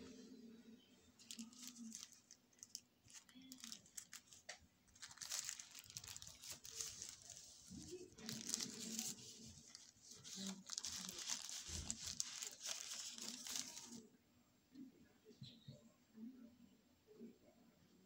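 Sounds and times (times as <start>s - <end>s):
plastic bag crinkling: 1.2s - 14.0s.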